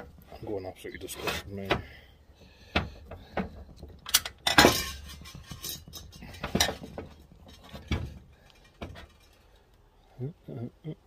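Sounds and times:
metal tools clinking: 0:04.0 - 0:07.9.

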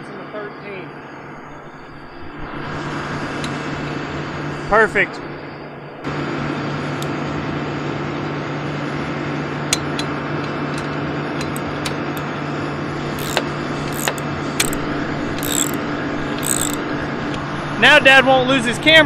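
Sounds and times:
engine humming: 0:00.9 - 0:19.0
ratchet wrench clicking: 0:13.2 - 0:16.8.

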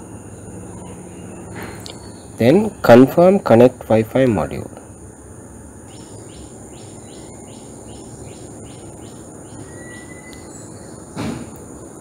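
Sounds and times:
insect hum: 0:00.0 - 0:12.0
thin whistle: 0:09.6 - 0:10.8.

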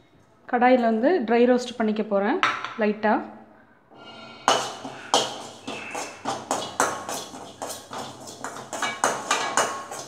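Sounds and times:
metal ladle scraping a pan: 0:04.0 - 0:10.0.

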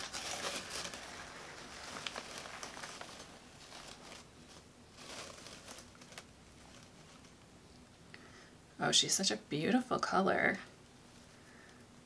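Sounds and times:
cloth bag rustling: 0:00.0 - 0:07.4
newspaper crinkling: 0:00.0 - 0:07.5.

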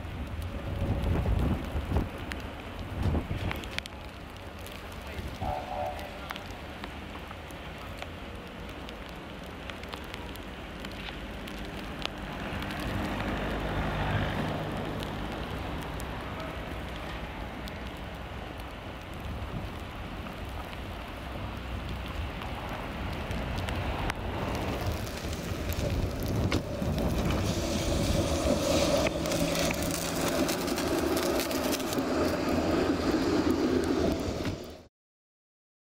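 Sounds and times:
low traffic rumble: 0:00.0 - 0:34.9
tram passing: 0:00.0 - 0:34.9
hiss: 0:24.6 - 0:31.1.

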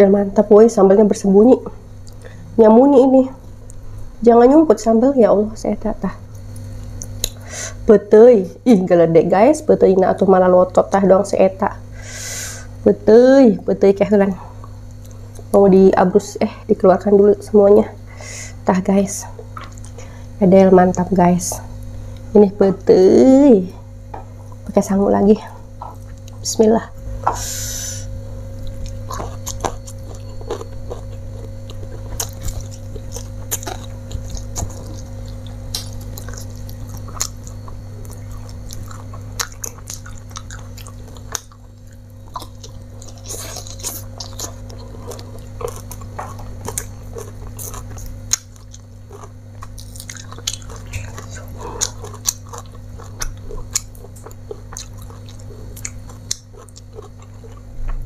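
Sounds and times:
steady low hum: 0:00.0 - 0:58.0
close-up chewing: 0:19.4 - 0:20.3, 0:28.4 - 0:58.0.

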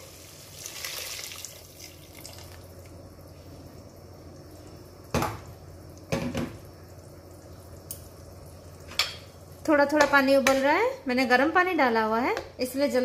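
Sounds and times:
water pouring into a pot: 0:00.0 - 0:03.0.

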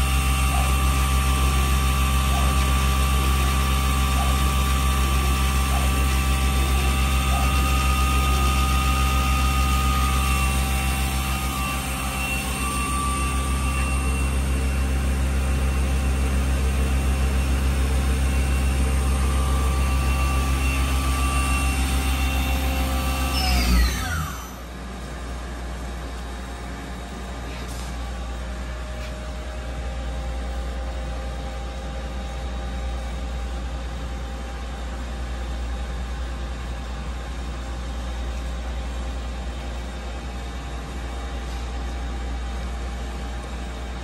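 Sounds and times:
lathe spindle whine: 0:00.0 - 0:27.4.

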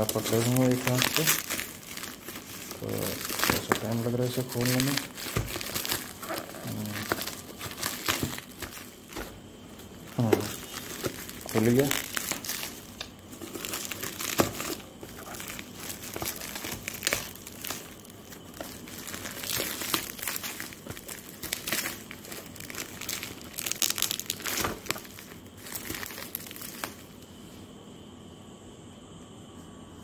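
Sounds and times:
bubble wrap crinkling: 0:00.0 - 0:27.3.

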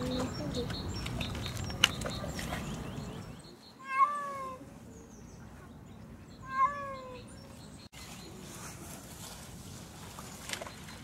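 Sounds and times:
cat meowing: 0:03.8 - 0:04.6, 0:06.4 - 0:07.2.

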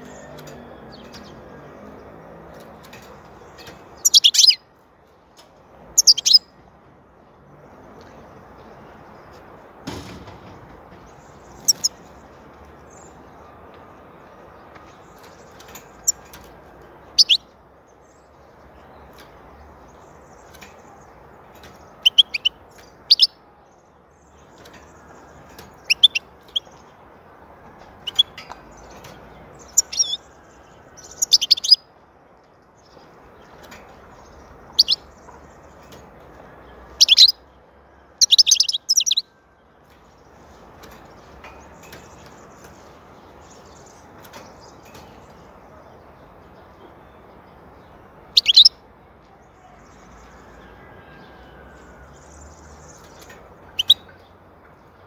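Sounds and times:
bird chirping and twittering: 0:00.0 - 0:06.6, 0:10.7 - 0:27.3, 0:27.9 - 0:32.0, 0:32.6 - 0:37.6, 0:38.2 - 0:55.0
thump: 0:09.8 - 0:10.8.

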